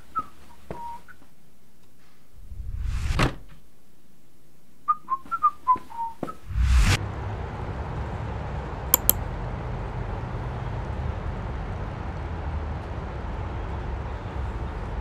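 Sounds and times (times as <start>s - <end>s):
whoosh: 2.4s - 3.4s, 6.4s - 7.0s
whistled tune: 4.9s - 6.5s
mouse clicks: 9.0s - 9.2s.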